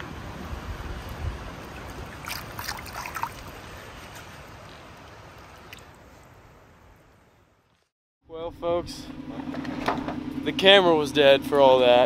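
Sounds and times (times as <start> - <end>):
stream trickling over rocks: 0.5 - 6.4
water splashes and drips: 0.5 - 6.8.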